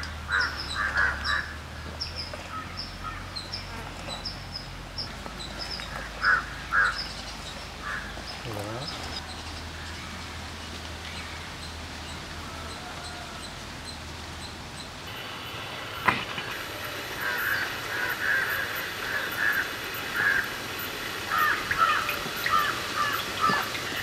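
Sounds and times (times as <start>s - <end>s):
crows cawing: 0.3s - 1.6s, 5.9s - 7.0s, 7.8s - 8.2s, 17.2s - 20.6s, 21.3s - 23.8s.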